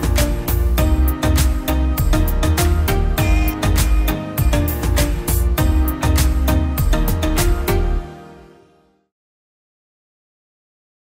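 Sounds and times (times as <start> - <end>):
sustained bass and melody: 0.0 - 8.5
drum beat: 1.4 - 7.6.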